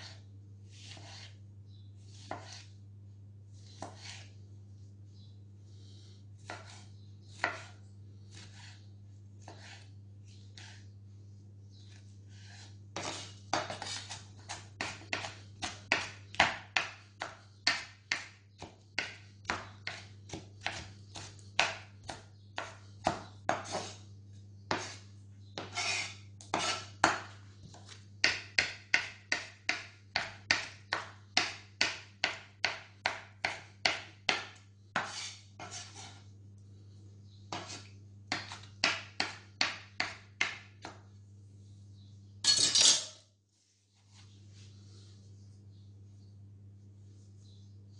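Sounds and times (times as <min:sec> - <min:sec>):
low steady hum: 0:00.0 - 0:47.9
knife blade scraping board: 0:00.8 - 0:01.4, 0:02.1 - 0:02.7, 0:03.7 - 0:04.3, 0:06.4 - 0:08.8, 0:09.4 - 0:09.9, 0:10.5 - 0:10.8, 0:12.3 - 0:15.3, 0:23.5 - 0:24.0, 0:24.7 - 0:25.0, 0:25.6 - 0:27.2, 0:35.0 - 0:36.3, 0:37.5 - 0:38.6
knife chopping on wooden board: 0:00.8 - 0:01.4, 0:02.2 - 0:02.7, 0:03.8 - 0:04.3, 0:06.4 - 0:08.8, 0:09.4 - 0:09.8, 0:12.4 - 0:24.0, 0:24.7 - 0:25.0, 0:25.6 - 0:36.2, 0:37.5 - 0:41.0.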